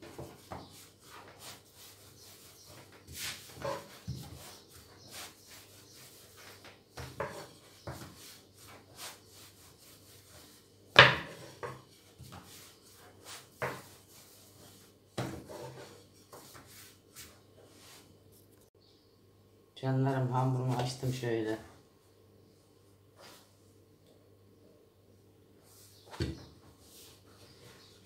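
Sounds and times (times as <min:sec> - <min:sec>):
hands patting dough: 0:00.0 - 0:17.4.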